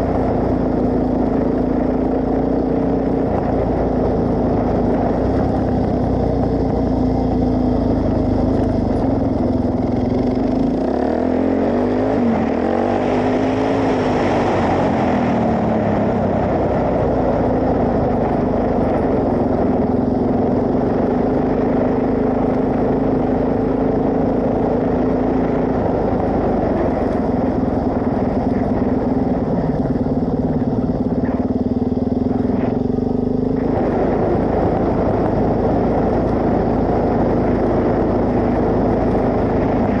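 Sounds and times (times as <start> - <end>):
motorcycle engine running: 0.0 - 40.0.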